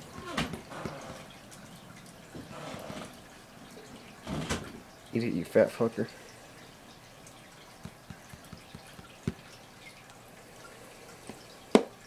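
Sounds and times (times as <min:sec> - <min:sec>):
clicks and taps on plastic tub: 0:00.0 - 0:01.4, 0:07.8 - 0:09.6, 0:11.3 - 0:12.0.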